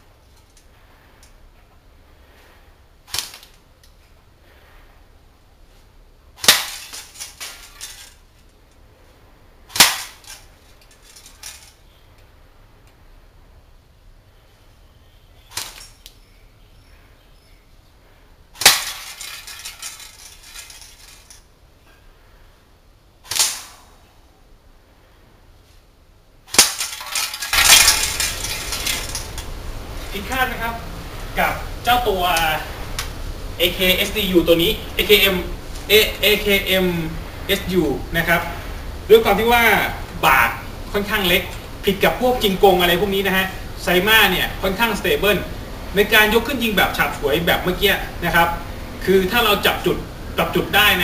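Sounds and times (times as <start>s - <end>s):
airsoft gun shots: 6.4s - 7.0s, 9.7s - 10.3s, 18.6s - 19.1s, 23.2s - 23.9s
airsoft rifle shots: 6.4s - 7.2s, 9.7s - 10.4s, 18.6s - 19.4s, 23.2s - 24.0s, 26.5s - 29.3s.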